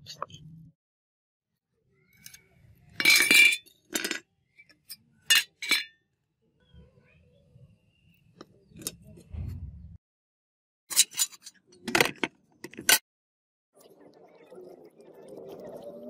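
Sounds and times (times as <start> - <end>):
metal cleaver clinking on concrete: 3.0 - 4.2.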